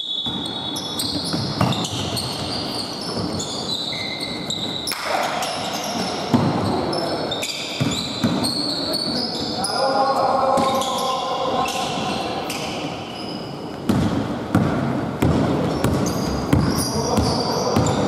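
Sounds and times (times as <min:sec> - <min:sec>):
sneakers squeaking: 0:00.0 - 0:18.0
basketball bouncing: 0:00.2 - 0:03.4, 0:07.8 - 0:08.5, 0:13.9 - 0:18.0.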